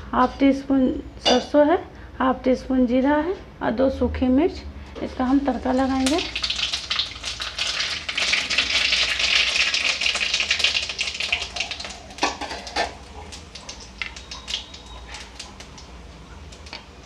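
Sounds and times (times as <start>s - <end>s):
spices spluttering in hot oil: 5.3s - 17.0s.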